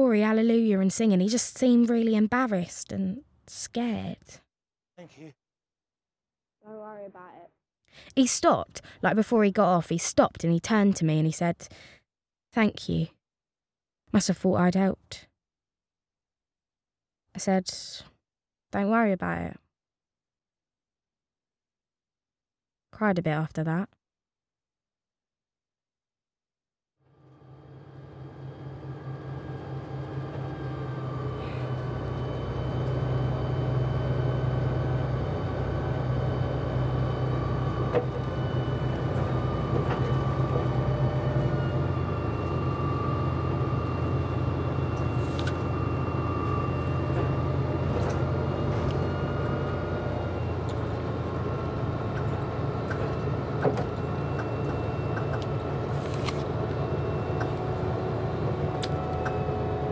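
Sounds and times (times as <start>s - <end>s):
bus engine drone with whine: 27.2s - 59.9s.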